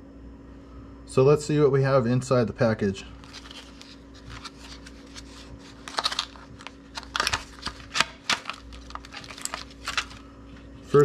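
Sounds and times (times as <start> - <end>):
plastic blister pack crackling: 3.2 - 10.6.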